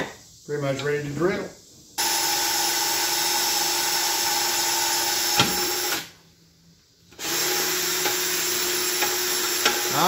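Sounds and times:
electric drill drilling metal: 2.0 - 6.2, 7.2 - 10.0.

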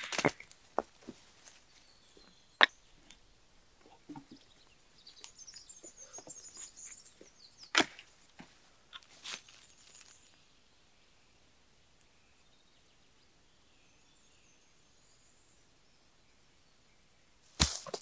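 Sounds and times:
twigs crackling: 0.0 - 3.2, 5.1 - 10.4, 17.5 - 18.0
dry branches cracking: 17.6 - 18.0.

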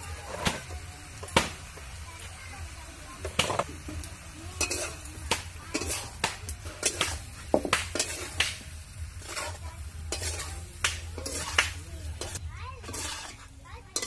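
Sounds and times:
metal spatula scraping iron pan: 0.1 - 1.4, 4.6 - 14.0.

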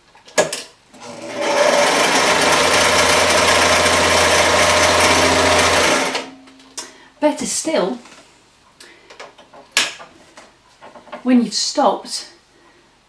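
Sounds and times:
sewing machine running: 1.0 - 6.3.

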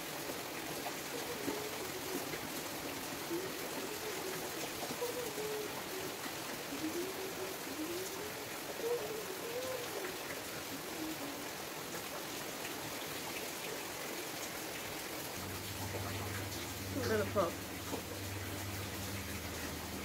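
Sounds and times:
steady rain falling: 0.0 - 20.0
person humming a tune: 6.8 - 10.1
low steady hum: 15.4 - 20.0.

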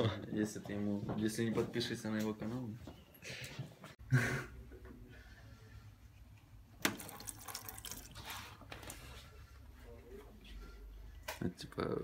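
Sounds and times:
water splashing onto drip tray: 6.8 - 8.2.

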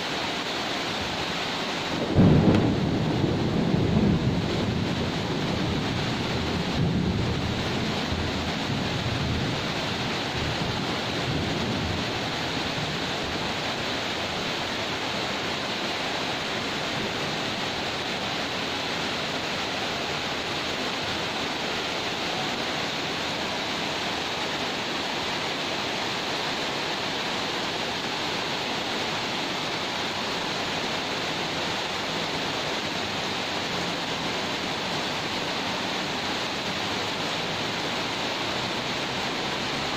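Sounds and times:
heavy rain pouring: 0.0 - 39.9
thunder rumble: 1.9 - 14.7.

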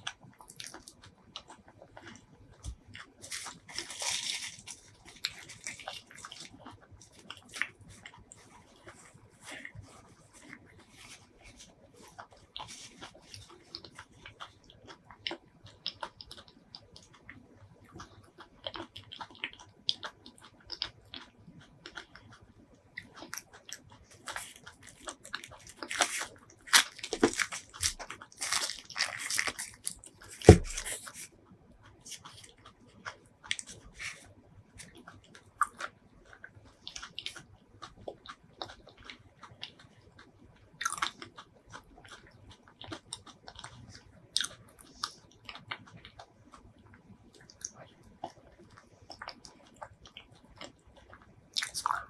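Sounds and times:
paper wrapping crinkling: 3.2 - 5.9, 25.4 - 31.3.

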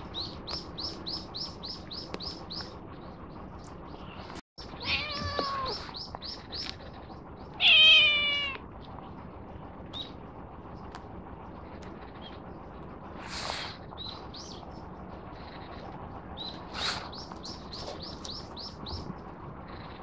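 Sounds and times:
bird chirping: 0.0 - 9.2, 9.9 - 10.9, 13.9 - 20.0
cat meowing: 4.8 - 6.0, 7.6 - 8.6.

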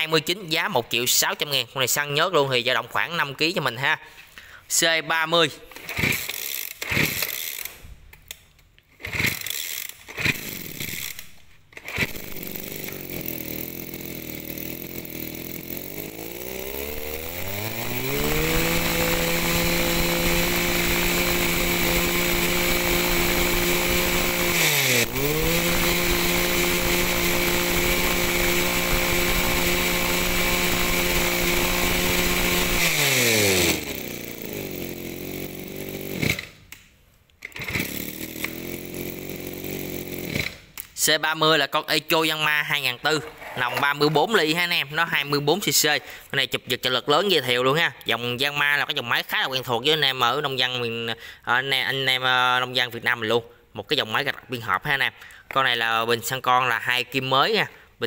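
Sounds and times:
brush cutter engine: 5.7 - 7.8, 8.9 - 36.6, 37.4 - 41.0
pull cord tugs: 5.7 - 41.1, 43.0 - 44.7.

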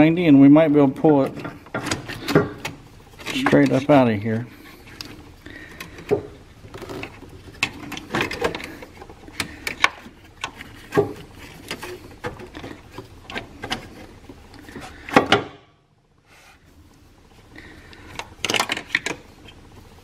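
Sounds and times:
engine mount knocking and scraping: 1.0 - 15.5.

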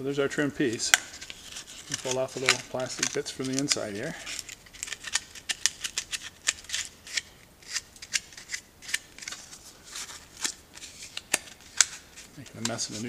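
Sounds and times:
sharp plastic clicks and crackles: 1.8 - 9.4.

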